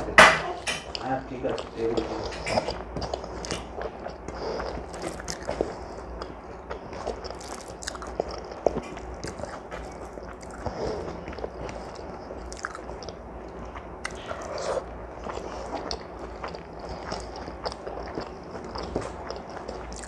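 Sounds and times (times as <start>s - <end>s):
person chewing food: 0.0s - 20.0s.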